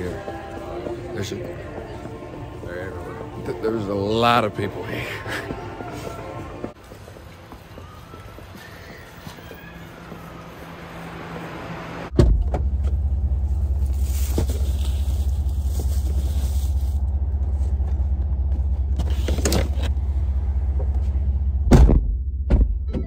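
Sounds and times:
truck engine idling: 12.4 - 21.7.

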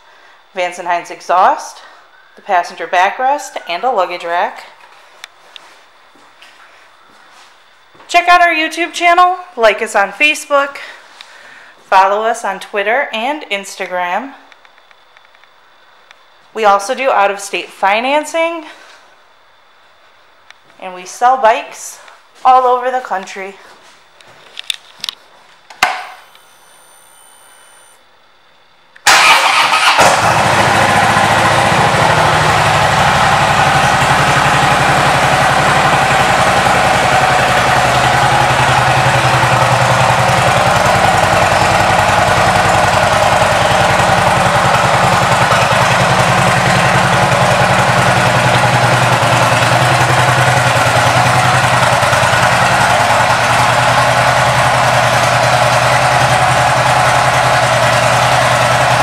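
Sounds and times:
faint hum: 0.0 - 29.0
motorcycle engine starting and idling: 29.0 - 59.0.

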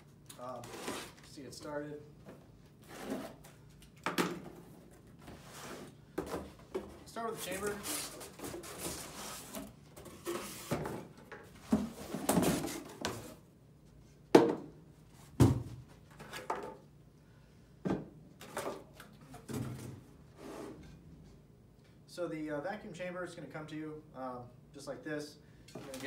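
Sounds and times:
cardboard and packing rustling: 4.4 - 13.4.

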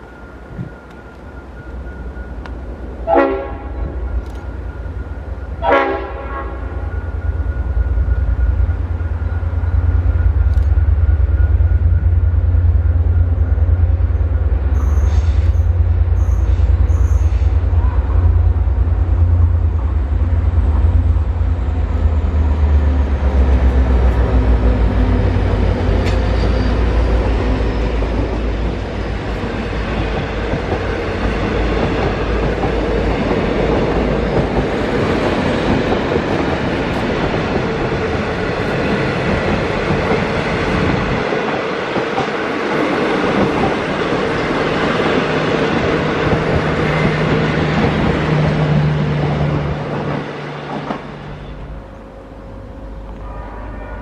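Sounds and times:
train wheels rattling and clattering: 21.9 - 51.2.

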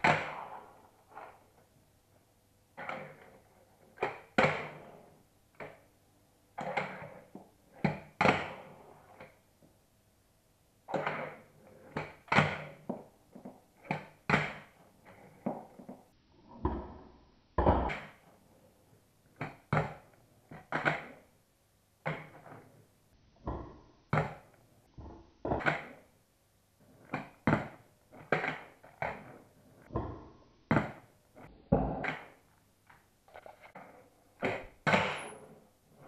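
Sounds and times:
skateboard wheels rolling: 0.0 - 1.6, 2.8 - 5.8, 10.9 - 16.0.

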